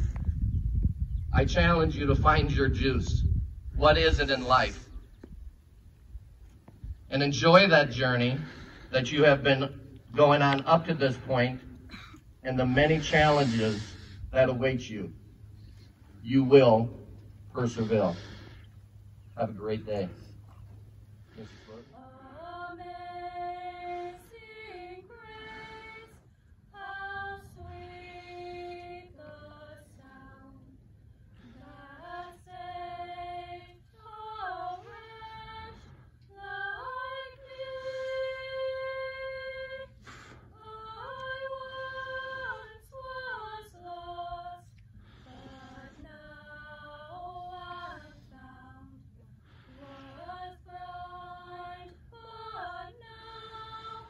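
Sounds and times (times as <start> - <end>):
women singing unaccompanied: 22.0 - 30.8, 31.6 - 49.2, 49.8 - 54.0.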